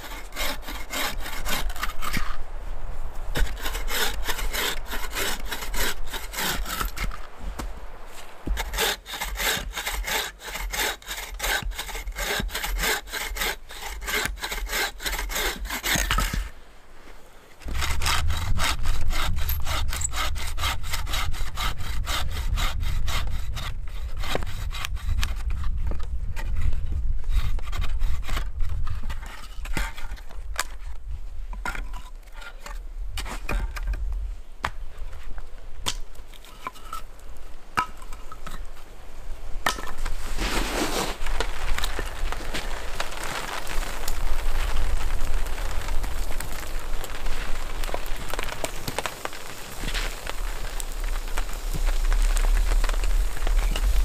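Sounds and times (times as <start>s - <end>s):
bow saw cutting logs: 0.0s - 2.4s, 3.3s - 16.5s, 17.6s - 25.7s.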